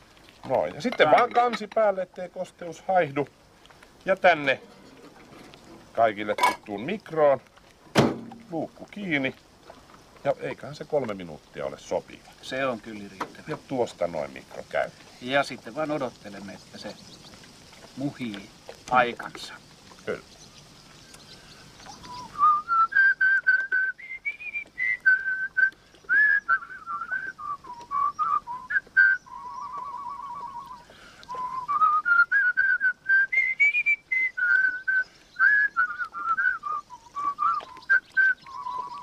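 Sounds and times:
person whistling a tune: 22.0 - 39.0.

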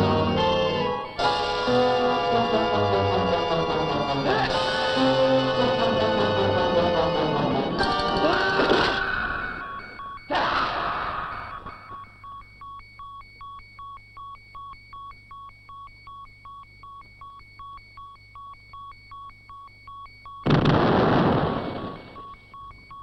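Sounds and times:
loud explosion: 20.5 - 22.2.

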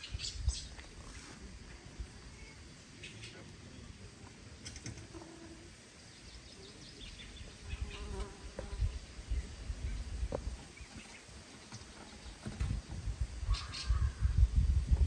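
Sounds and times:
flying insect buzzing: 4.8 - 5.8, 7.3 - 9.4.

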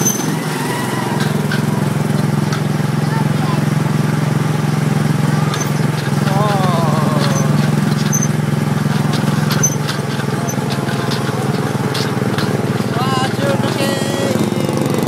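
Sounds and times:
car rattling: 0.0 - 15.0
small gasoline engine running: 0.0 - 15.0
person speaking: 6.2 - 7.8, 12.9 - 15.0.

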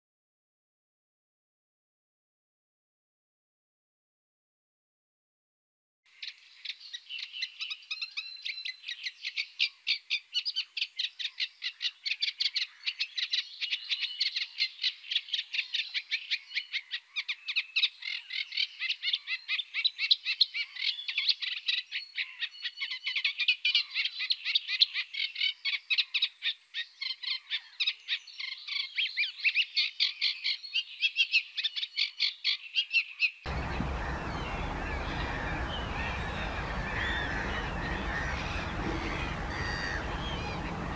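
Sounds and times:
chorus of rapid animal calls: 33.5 - 40.9
rushing background noise: 33.5 - 40.9.

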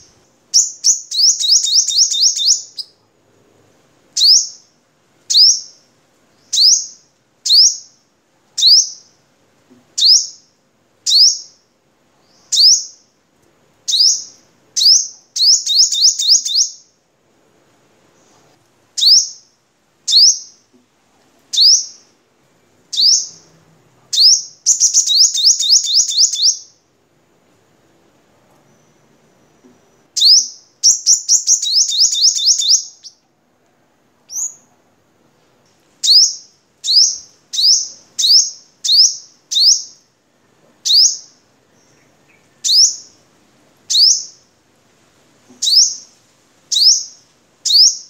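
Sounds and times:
sunbird singing: 0.0 - 3.0, 4.2 - 4.7, 5.3 - 5.8, 6.4 - 8.0, 8.6 - 9.2, 10.0 - 11.6, 12.2 - 13.1, 13.9 - 16.9, 19.0 - 20.7, 21.5 - 22.1, 22.9 - 23.6, 24.2 - 26.8, 28.7 - 33.2, 36.0 - 40.1, 40.8 - 43.2, 43.9 - 44.5, 45.6 - 46.1, 46.7 - 48.0.

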